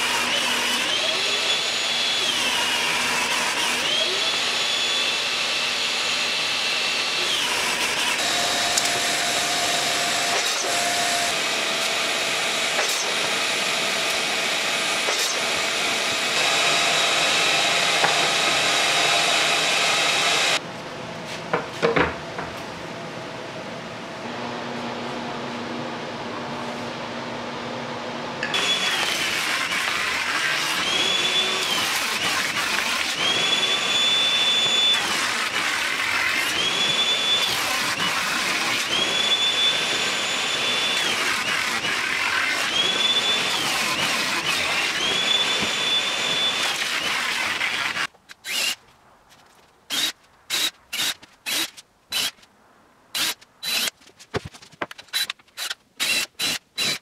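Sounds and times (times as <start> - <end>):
cordless drill driving screws: 0.0 - 20.6, 28.5 - 48.8, 49.9 - 52.4, 53.1 - 54.0, 55.1 - 57.0
table saw whining: 0.0 - 20.6, 28.4 - 48.8.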